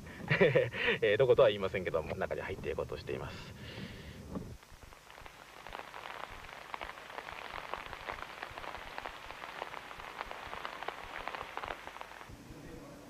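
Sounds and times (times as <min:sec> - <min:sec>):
rain pattering: 0:04.5 - 0:12.3.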